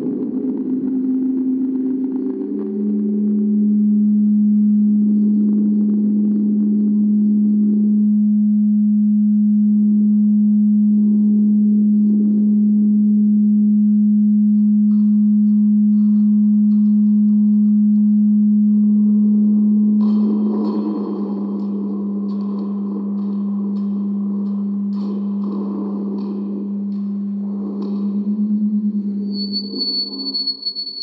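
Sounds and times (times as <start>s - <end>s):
steady electronic tone: 18.2s - 31.0s.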